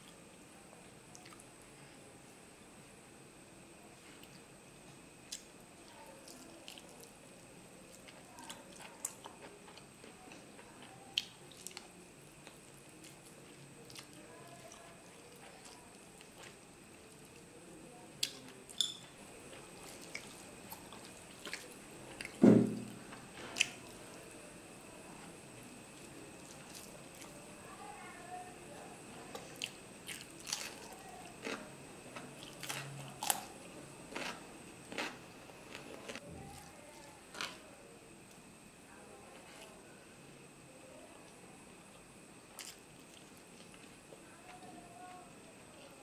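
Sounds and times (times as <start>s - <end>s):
soft chewing and mouth clicks: 0.8s - 1.6s, 4.0s - 4.5s, 5.2s - 17.5s, 18.2s - 22.4s, 23.1s - 24.4s, 25.2s - 27.5s, 29.1s - 38.5s, 41.2s - 46.0s.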